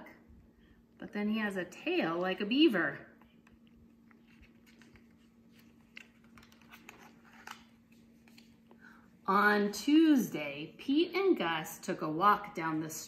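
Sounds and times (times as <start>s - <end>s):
paper page turning: 4.0s - 8.6s.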